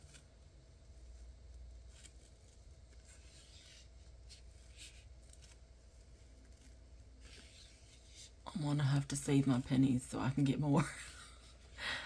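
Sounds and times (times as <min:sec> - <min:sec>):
tape rustling: 0:00.0 - 0:08.5.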